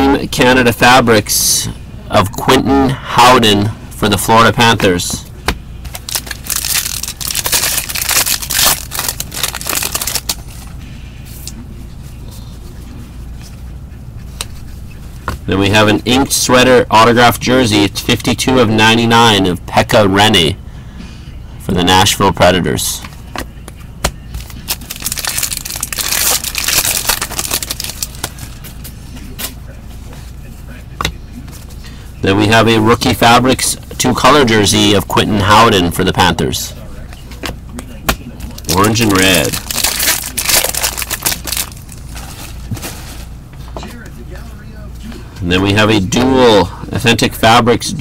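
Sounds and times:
foil wrapper crinkling: 5.9s - 10.6s, 24.4s - 28.6s, 38.5s - 43.3s.

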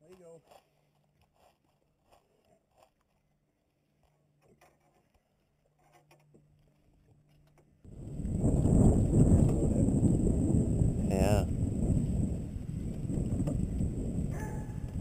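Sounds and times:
wind buffeting microphone: 7.9s - 15.0s.

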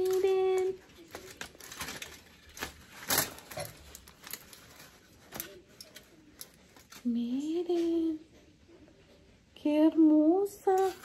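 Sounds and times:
paper and foil crinkling: 0.0s - 8.1s, 10.6s - 11.0s.

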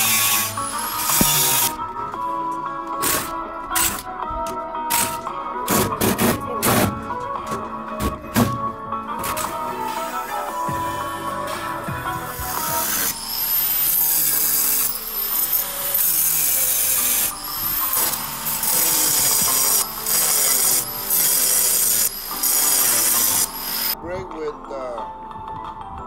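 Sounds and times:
angle grinder cutting steel: 0.0s - 1.8s, 9.8s - 24.0s.

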